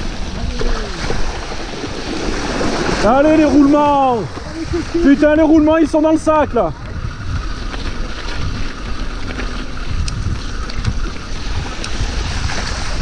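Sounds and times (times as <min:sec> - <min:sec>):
bike tyres rolling through mud: 0:00.0 - 0:13.0
wind buffeting microphone: 0:00.0 - 0:13.0
bike clicks and rattles: 0:03.6 - 0:13.0.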